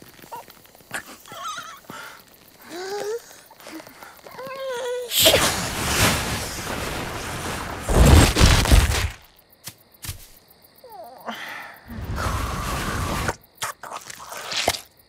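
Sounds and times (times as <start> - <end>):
cartoon whoosh: 5.1 - 6.5.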